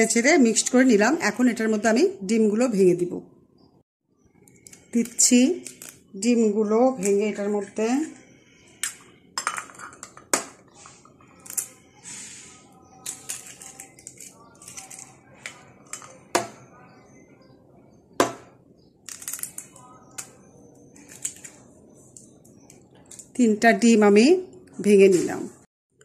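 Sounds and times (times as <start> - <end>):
eggs cracking against glass bowl: 4.5 - 6.1, 11.4 - 11.8, 18.2 - 20.4
eggshell crackling: 4.5 - 6.1, 13.0 - 16.6, 18.2 - 23.4.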